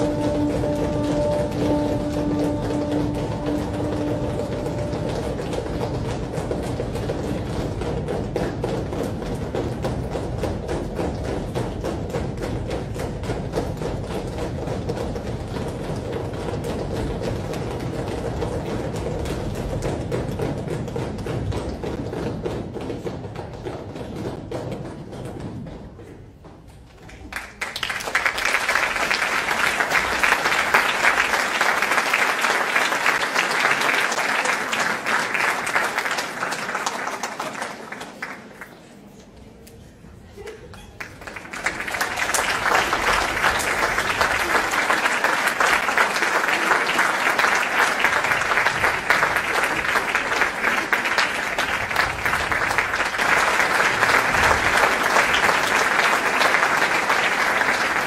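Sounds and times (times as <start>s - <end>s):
audience applauding: 27.1s - 39.0s, 41.0s - 58.0s.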